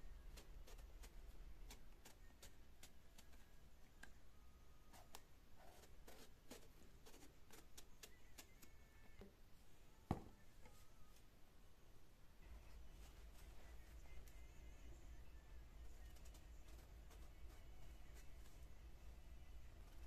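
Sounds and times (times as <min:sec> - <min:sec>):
knock: 0:10.1 - 0:10.4.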